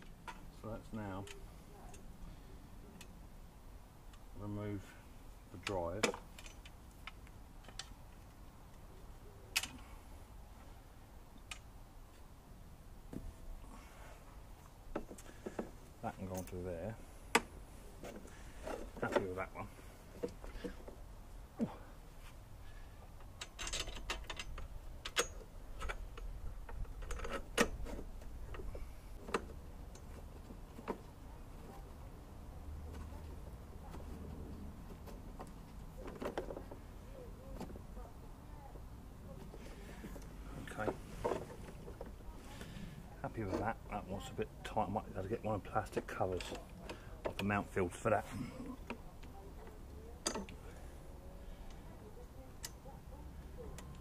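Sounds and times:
metal handlebar clicks and knocks: 23.2 - 31.0, 50.2 - 50.6.

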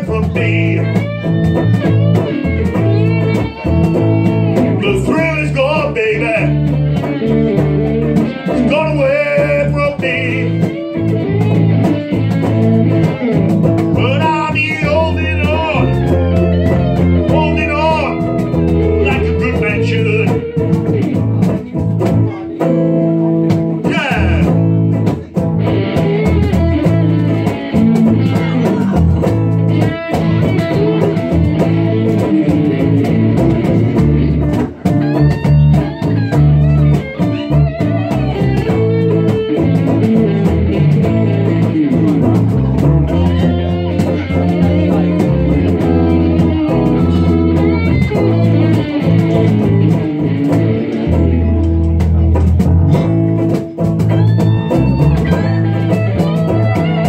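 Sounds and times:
bass guitar: 0.0 - 57.0
electric guitars: 0.0 - 57.0.

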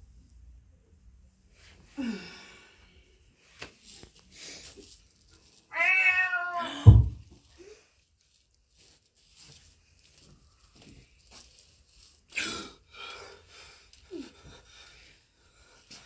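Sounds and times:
cat meowing: 5.7 - 7.0
heavy thump: 6.8 - 7.3.

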